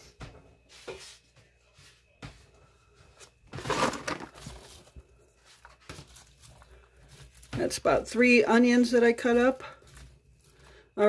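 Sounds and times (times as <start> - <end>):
onion pieces dropping into pot: 3.5 - 4.7
rustling clatter: 3.5 - 4.9.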